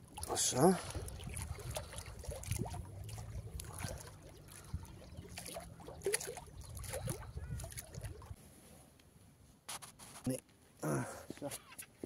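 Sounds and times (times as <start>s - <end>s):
low steady rumble: 0.0s - 8.4s
small waves lapping against bank: 0.0s - 8.4s.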